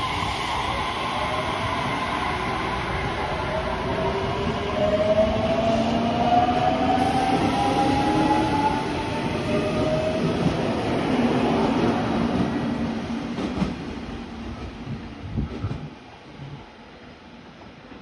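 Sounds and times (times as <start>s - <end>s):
train wheels rumbling and clacking: 6.9s - 14.0s.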